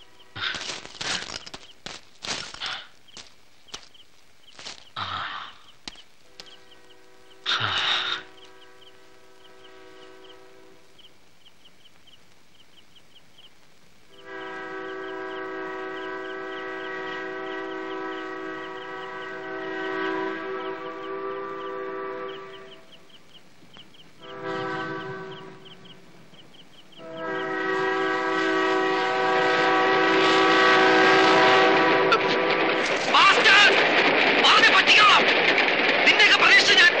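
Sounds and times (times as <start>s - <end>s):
crickets chirping: 0.0s - 27.9s
train horn blasts: 6.3s - 10.8s, 14.1s - 23.0s, 24.2s - 25.8s, 27.0s - 32.8s.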